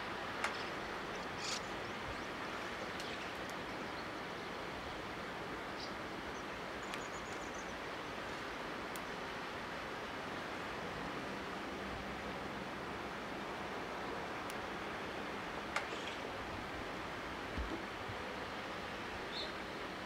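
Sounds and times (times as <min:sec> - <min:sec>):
river bank ambience hiss: 0:00.0 - 0:20.0
faint clicks and chirps: 0:00.4 - 0:02.0, 0:02.8 - 0:04.0, 0:06.8 - 0:07.7.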